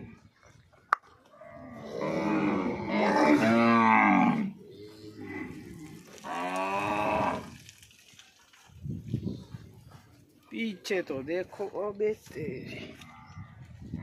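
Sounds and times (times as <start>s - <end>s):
cows mooing: 1.3s - 7.6s.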